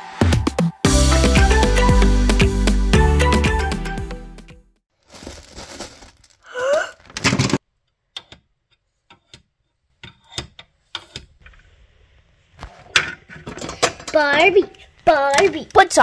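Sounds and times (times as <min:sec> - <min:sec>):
rustling noise: 0:04.9 - 0:07.6
plastic toys clicking and tapping: 0:13.4 - 0:16.0.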